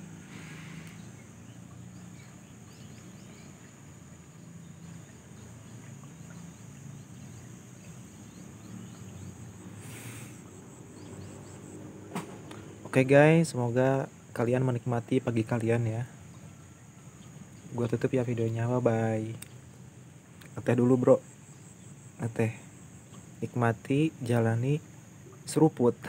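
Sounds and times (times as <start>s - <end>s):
high insect trill: 0.0s - 26.0s
low steady hum: 0.0s - 26.0s
brief hiss: 0.2s - 1.0s, 9.8s - 10.5s.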